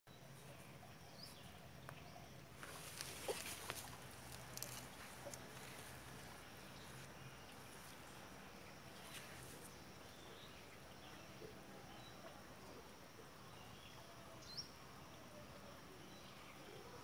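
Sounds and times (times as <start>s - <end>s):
steady low hum: 0.1s - 17.0s
soft clicks and rustles: 2.6s - 7.1s.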